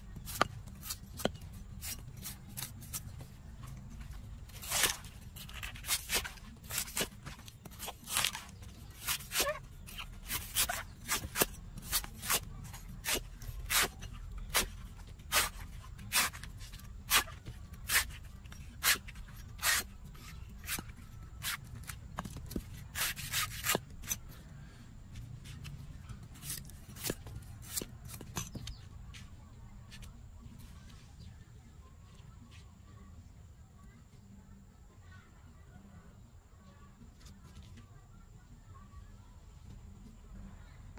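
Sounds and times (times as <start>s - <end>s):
cleaver chopping coconut husk: 0.1s - 24.2s, 25.6s - 28.8s.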